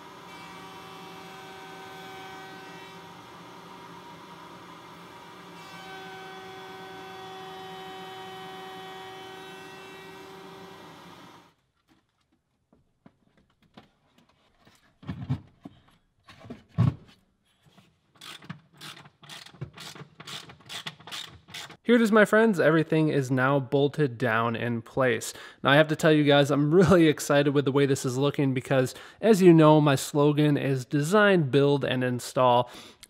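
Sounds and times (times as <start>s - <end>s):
router whining: 0.0s - 11.5s.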